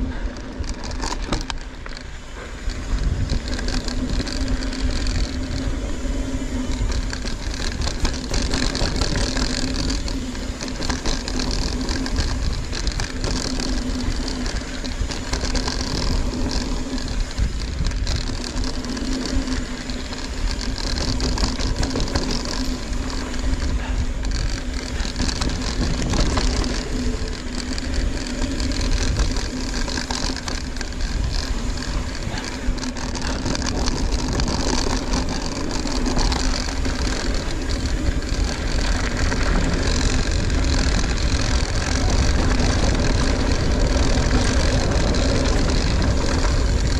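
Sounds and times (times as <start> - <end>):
bike rattling: 0.0 - 46.9
bike tyres rolling over rough ground: 0.0 - 46.9
steady buzzing tone: 0.0 - 46.9
wind on microphone: 0.0 - 46.9.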